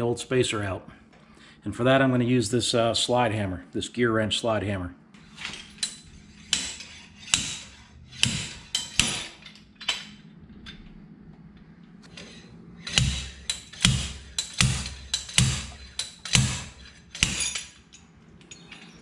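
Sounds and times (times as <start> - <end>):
slide hammer metallic clacks: 5.3 - 10.2, 12.1 - 19.0.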